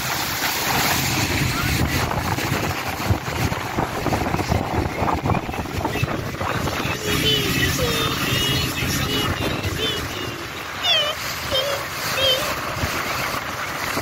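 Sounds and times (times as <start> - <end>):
boat engine drone: 0.0 - 14.0
water rushing past hull: 0.0 - 14.0
wind buffeting microphone: 0.6 - 11.6.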